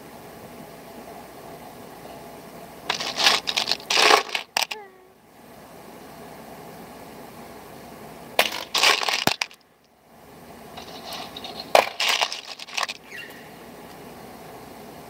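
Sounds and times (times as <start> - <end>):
steady background hum: 0.0 - 15.0
metal parts clinking and rattling: 2.9 - 4.8, 8.4 - 9.6, 10.8 - 13.0.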